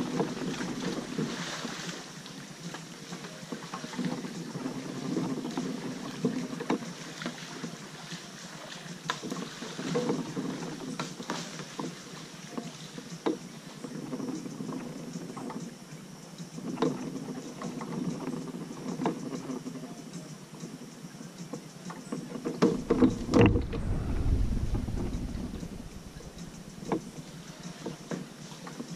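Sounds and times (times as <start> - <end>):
paddle splashing in water: 0.0 - 13.0, 22.6 - 28.5
steady hiss: 22.6 - 28.9.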